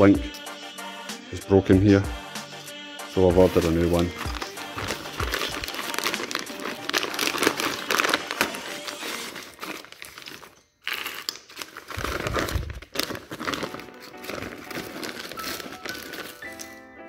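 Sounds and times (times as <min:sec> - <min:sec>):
plastic packaging crinkling: 0:03.4 - 0:17.0.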